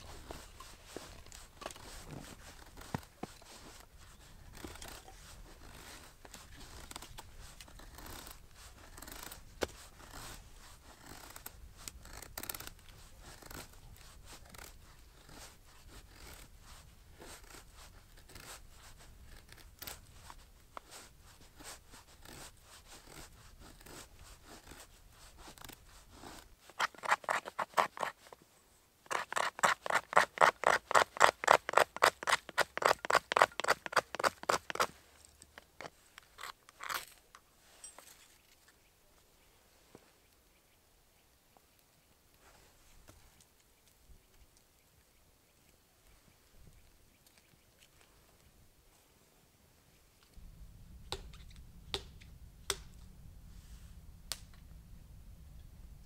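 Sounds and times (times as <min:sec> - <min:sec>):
knife shaving wood: 0:00.0 - 0:28.4, 0:29.1 - 0:36.6.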